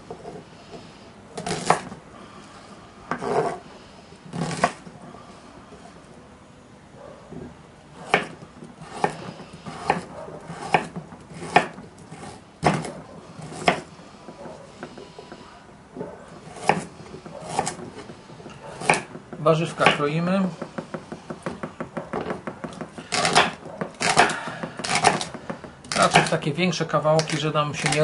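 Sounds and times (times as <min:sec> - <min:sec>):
knife chopping on wooden board: 0:01.4 - 0:02.0, 0:03.1 - 0:03.6, 0:04.3 - 0:04.9, 0:08.0 - 0:26.4.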